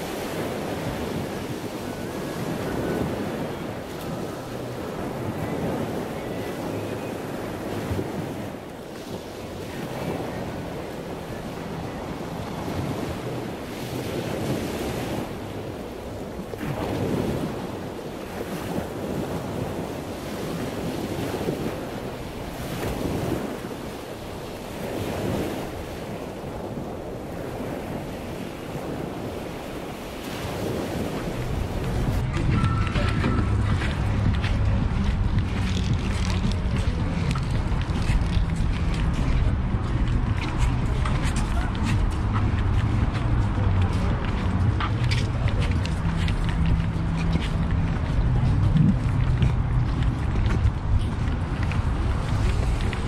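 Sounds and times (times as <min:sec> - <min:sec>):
wind on microphone: 0:00.0 - 0:53.0.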